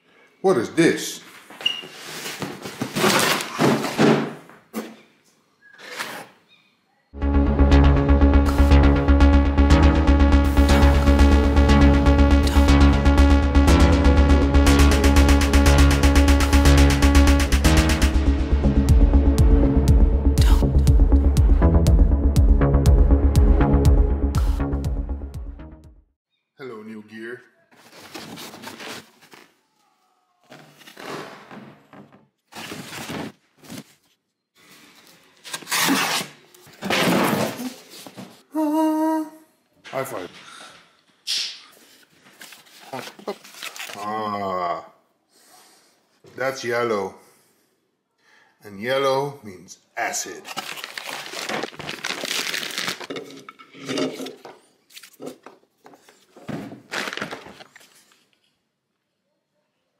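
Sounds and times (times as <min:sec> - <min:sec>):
plastic bag crinkling: 0:50.4 - 0:54.1, 0:56.9 - 0:58.1.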